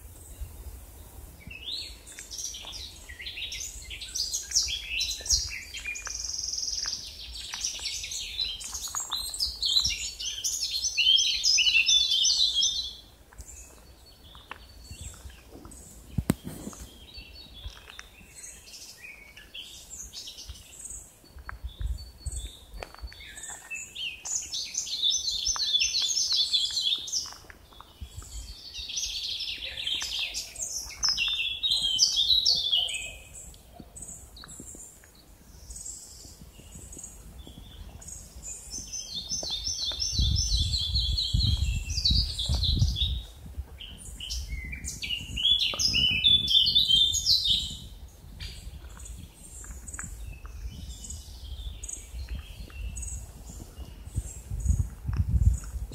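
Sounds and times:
songbirds singing: 0.0 - 55.9
low rumble on microphone: 36.2 - 47.0, 47.6 - 55.9.

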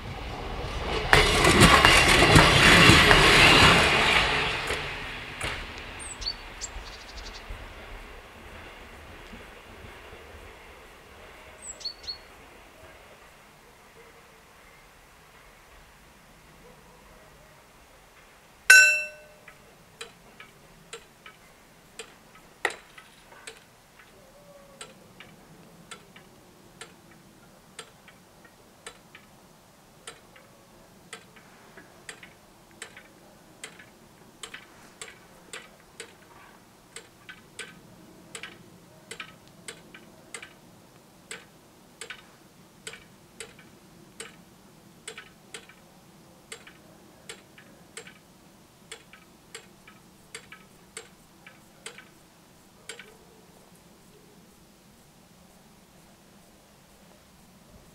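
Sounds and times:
crossing bell strike: 18.7 - 19.4
mechanical ticking of barriers: 32.1 - 36.3, 36.9 - 40.6, 42.8 - 44.4, 45.0 - 45.8, 48.9 - 52.2.

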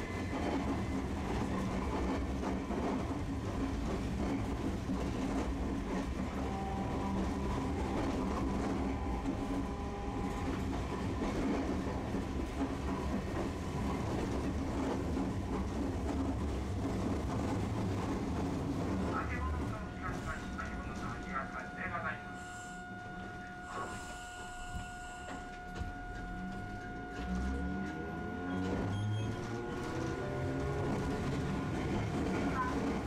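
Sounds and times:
streetcar wheels rumbling: 0.0 - 33.0.

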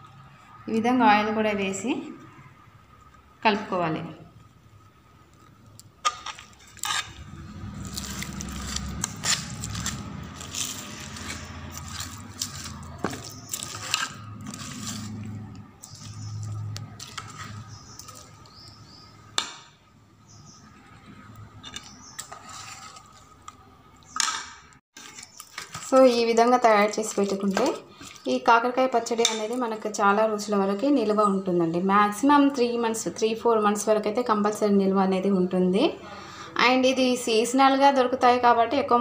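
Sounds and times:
wet squelching of pickle mixing: 5.4 - 18.9, 25.0 - 28.5
spoon clinking and scraping pot: 6.0 - 18.7, 25.0 - 28.2.

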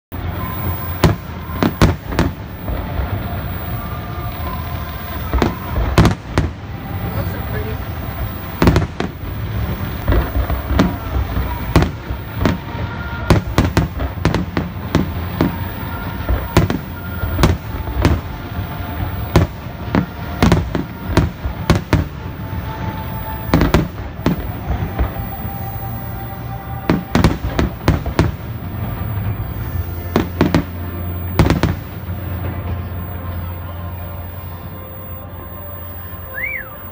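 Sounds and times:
fireworks bursting bangs: 0.0 - 36.9
steady low rumble: 0.0 - 36.9.

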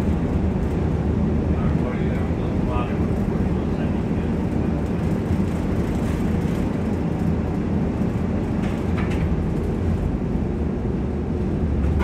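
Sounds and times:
streetcar wheels rumbling: 0.0 - 12.0.

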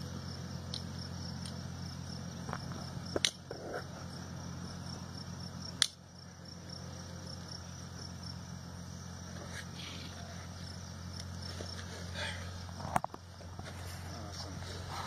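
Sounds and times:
insects chirping trill: 0.0 - 15.0
low steady hum: 0.0 - 15.0
sharp click: 3.2 - 3.4.

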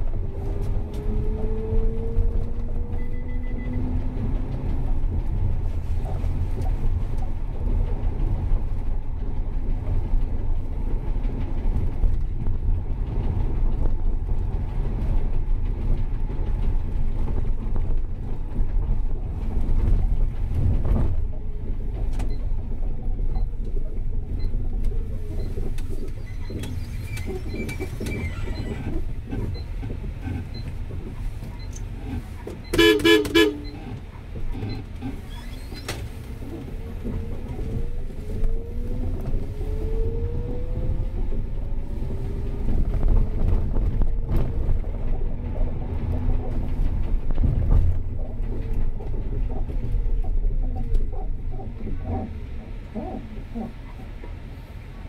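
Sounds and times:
vehicle rumble in traffic: 0.0 - 55.0
car horn toot: 32.7 - 33.8.

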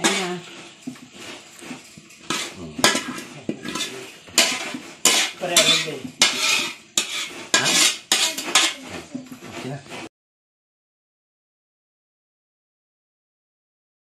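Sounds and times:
metal spatula scraping a pan: 0.0 - 10.1.

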